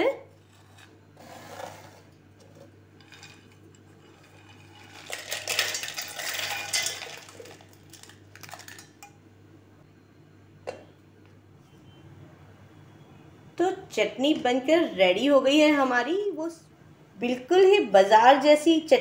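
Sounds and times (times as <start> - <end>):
nuts rattling into steel jar: 3.0 - 3.4, 4.1 - 9.0.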